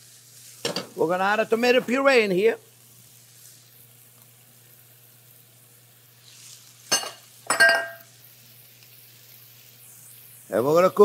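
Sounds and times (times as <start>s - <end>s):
food sizzling in a pan: 0.0s - 11.0s
metal clanks with ring: 7.0s - 8.0s.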